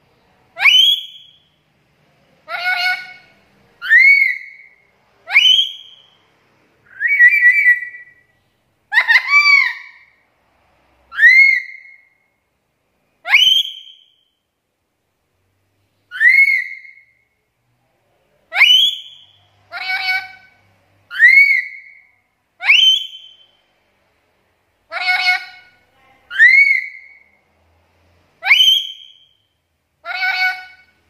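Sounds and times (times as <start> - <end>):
parrot whistled calls: 0.6 - 1.5, 2.5 - 6.2, 6.9 - 8.3, 8.9 - 10.1, 11.1 - 12.2, 13.2 - 14.4, 16.1 - 17.2, 18.5 - 23.6, 26.3 - 27.3, 28.4 - 31.0.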